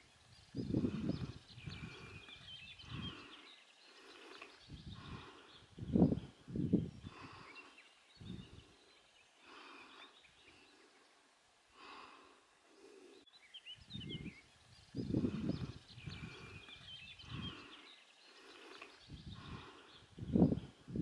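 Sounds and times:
small birds chirping: 0:00.0 - 0:21.0
wind buffeting microphone: 0:00.4 - 0:03.3, 0:04.6 - 0:07.4, 0:08.2 - 0:08.7, 0:13.8 - 0:17.7, 0:19.0 - 0:21.0.

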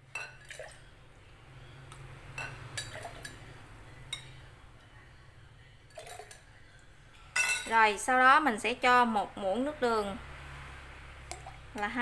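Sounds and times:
spoon clinking against glass bowl: 0:02.3 - 0:03.4, 0:04.1 - 0:04.4, 0:07.4 - 0:07.8.

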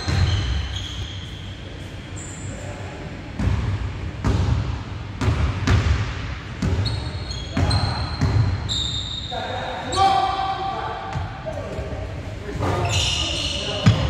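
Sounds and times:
short high squeaks: 0:00.0 - 0:02.6, 0:06.8 - 0:09.4, 0:12.8 - 0:13.8.

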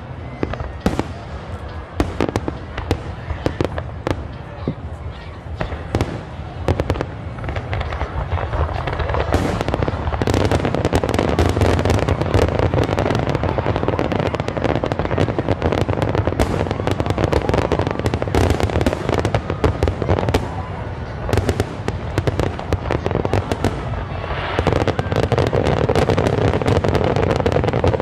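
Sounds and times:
fireworks bangs and booms: 0:00.0 - 0:28.0.

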